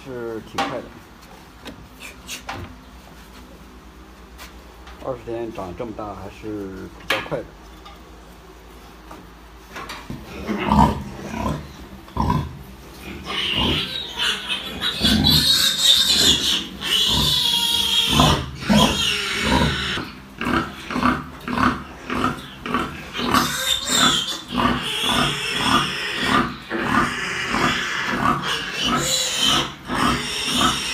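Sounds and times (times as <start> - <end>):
piglets squealing: 12.2 - 30.9.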